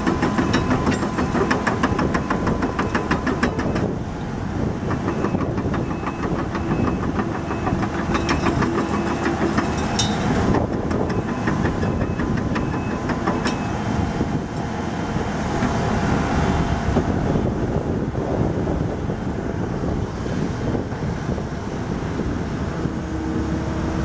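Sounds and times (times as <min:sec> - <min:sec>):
rapid metallic clatter: 0:00.0 - 0:04.0, 0:04.8 - 0:13.8
diesel engine running: 0:00.0 - 0:24.0
hydraulic arm clicks: 0:04.9 - 0:13.8.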